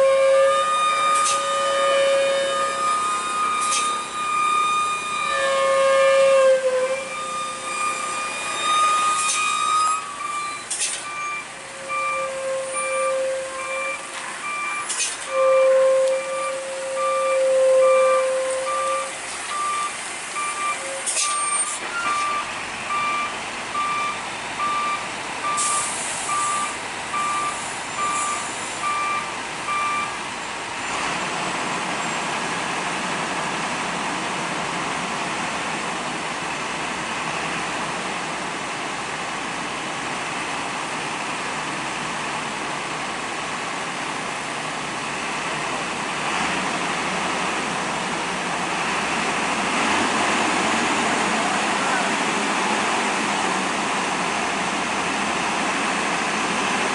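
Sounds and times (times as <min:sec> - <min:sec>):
truck reversing alarm beeping: 0:00.0 - 0:30.6
traffic rushing: 0:00.0 - 0:56.9.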